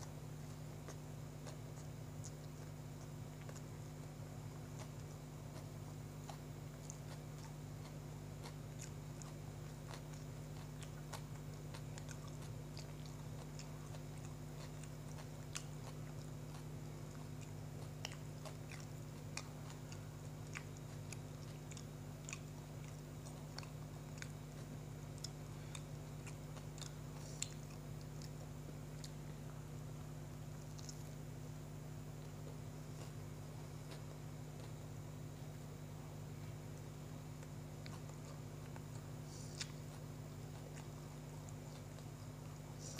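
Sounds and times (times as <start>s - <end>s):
low electrical hum: 0.0s - 42.9s
person chewing bread: 0.0s - 42.9s
wet mouth clicks: 4.6s - 29.6s, 30.6s - 31.2s, 37.8s - 42.9s.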